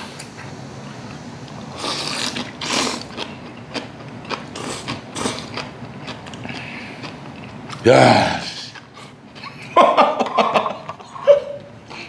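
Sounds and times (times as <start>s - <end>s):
chewing noises: 1.1s - 7.9s, 8.6s - 9.5s.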